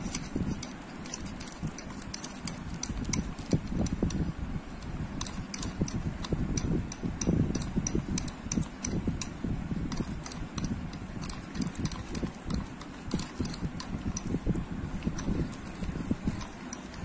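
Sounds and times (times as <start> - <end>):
thick fat churning: 0.0 - 4.1, 5.2 - 17.0
whisk clicking against steel bowl: 5.2 - 14.4, 15.0 - 17.0.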